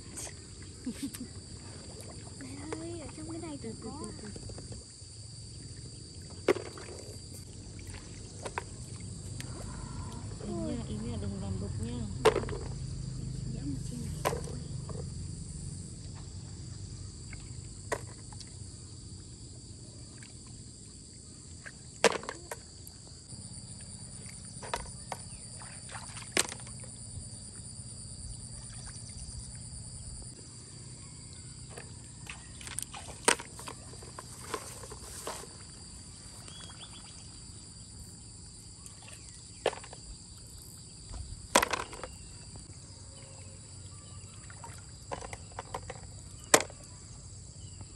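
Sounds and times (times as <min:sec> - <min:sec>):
insects droning: 0:00.0 - 0:47.9
snails clacking into plastic basin: 0:12.1 - 0:13.4, 0:41.5 - 0:42.3, 0:45.1 - 0:46.8.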